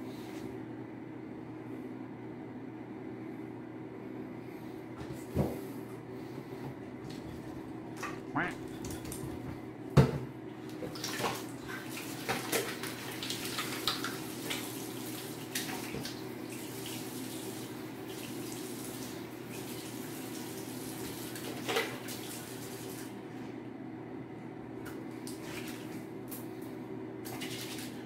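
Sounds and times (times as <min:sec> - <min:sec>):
water splashes: 0:10.8 - 0:17.5
faucet running: 0:11.8 - 0:23.1.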